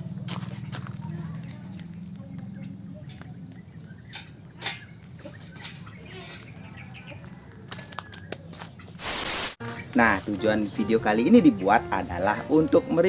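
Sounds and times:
insect chirring: 8.9 - 13.0.

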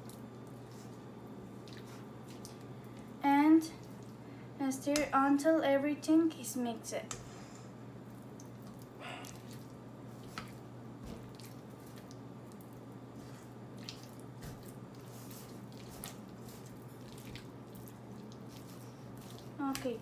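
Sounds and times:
low steady hum: 0.0 - 20.0
dip squishing: 1.6 - 3.1, 8.4 - 20.0.

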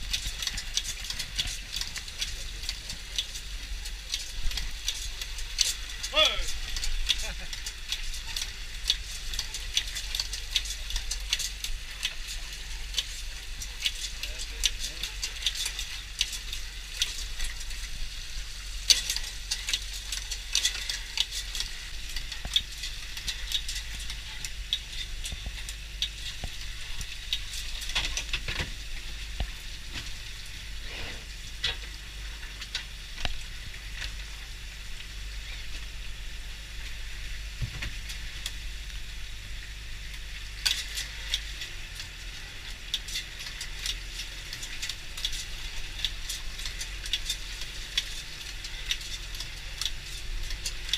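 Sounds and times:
water dripping: 0.0 - 30.7, 31.5 - 50.9.

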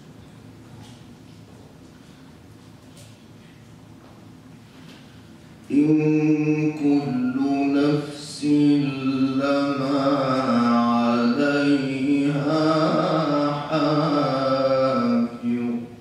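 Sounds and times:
man chanting recitation: 5.7 - 16.0.

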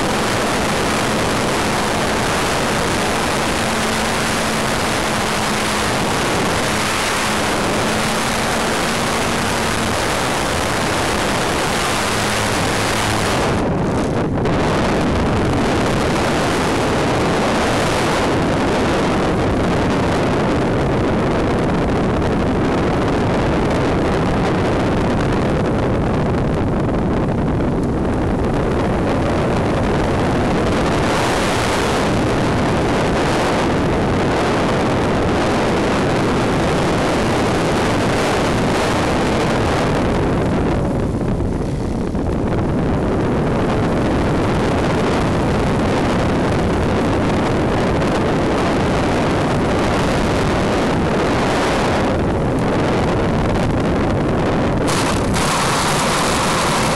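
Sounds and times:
wind rushing over microphone: 0.0 - 56.9
model plane motor: 54.9 - 56.9.

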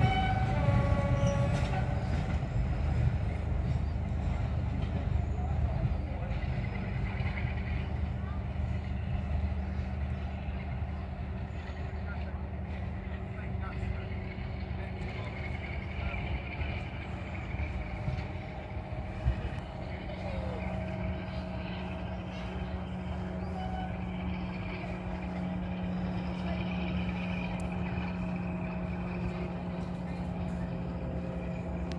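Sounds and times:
distant diesel locomotive engine drone: 0.0 - 31.9.

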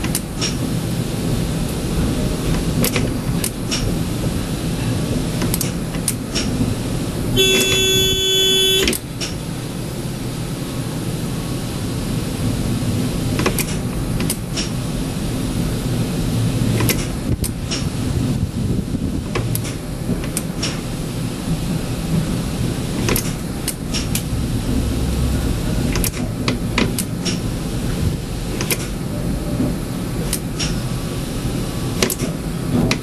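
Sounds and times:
tram rumbling: 0.0 - 33.0
tram horn: 7.3 - 11.9, 23.6 - 27.1.

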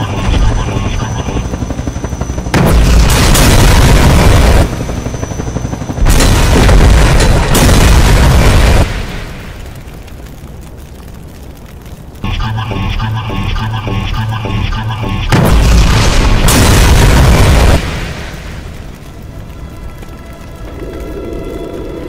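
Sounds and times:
explosion blasts: 2.5 - 4.8, 6.0 - 9.8, 15.3 - 19.2.

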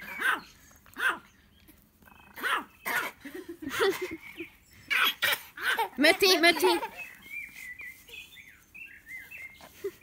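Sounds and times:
small dog yapping: 0.0 - 1.3, 2.1 - 3.2, 4.9 - 6.0.

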